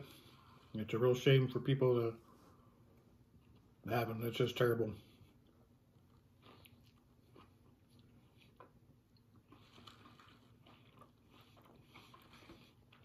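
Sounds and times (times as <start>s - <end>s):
close-up chewing: 5.2s - 13.0s.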